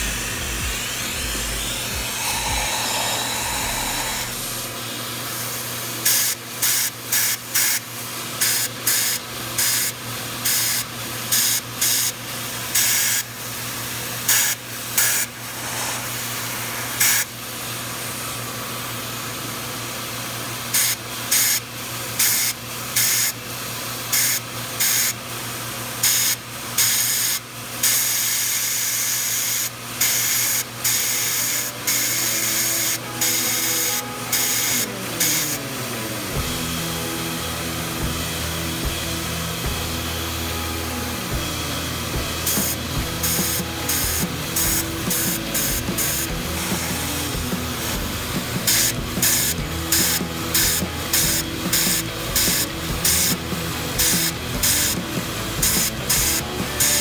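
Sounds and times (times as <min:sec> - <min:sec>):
vacuum running: 0:00.0 - 0:06.1, 0:13.3 - 0:20.6, 0:31.2 - 0:57.0.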